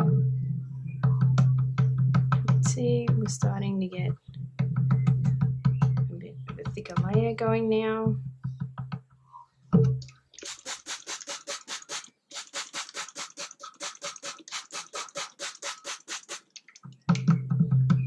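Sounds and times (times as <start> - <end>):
spray bottle spraying: 10.4 - 16.8.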